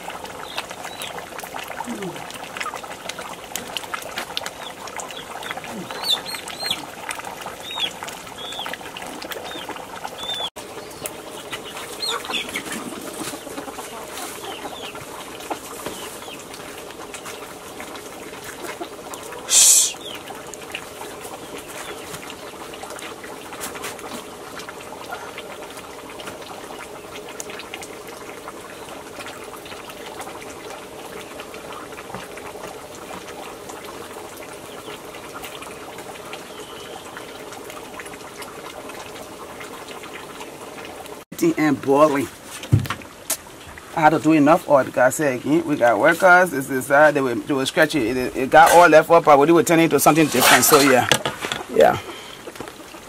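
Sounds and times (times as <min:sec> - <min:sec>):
pot boiling over fire: 0:00.0 - 0:53.0
birds chirping: 0:00.4 - 0:01.2, 0:04.5 - 0:06.9, 0:07.5 - 0:16.5, 0:18.5 - 0:20.6, 0:36.4 - 0:37.4.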